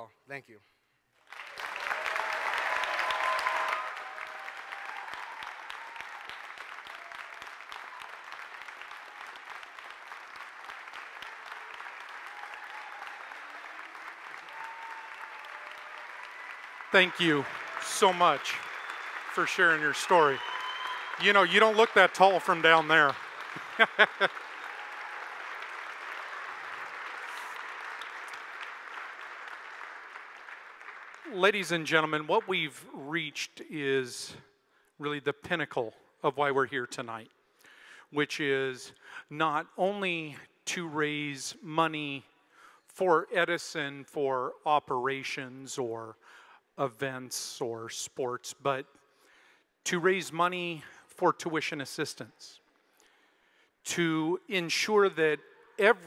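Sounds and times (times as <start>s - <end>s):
audience applauding: 1.2s - 32.4s.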